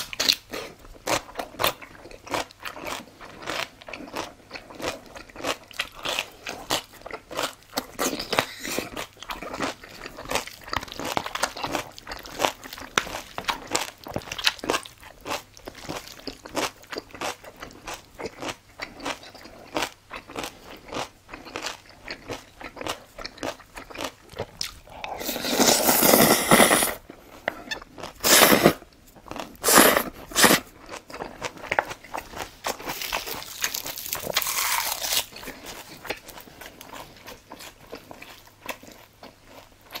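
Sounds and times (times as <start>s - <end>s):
wet chewing and lip smacking: 0.0s - 28.3s
slurping noodles: 25.0s - 27.5s, 28.2s - 28.8s, 29.6s - 30.7s.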